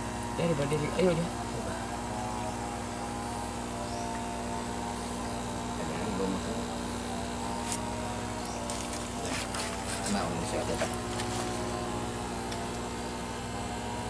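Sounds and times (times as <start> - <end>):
pump motor humming: 0.0 - 14.0.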